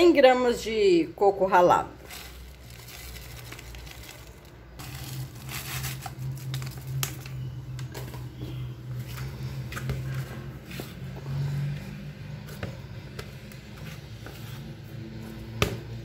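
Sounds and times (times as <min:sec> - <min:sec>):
plastic bag crinkling: 0:02.0 - 0:07.4.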